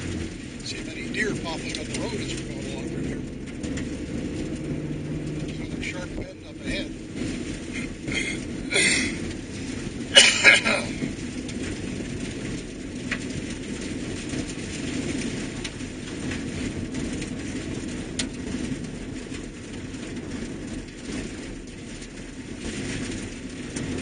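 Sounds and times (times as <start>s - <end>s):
vehicle engine and tyres rumbling: 0.0s - 24.0s.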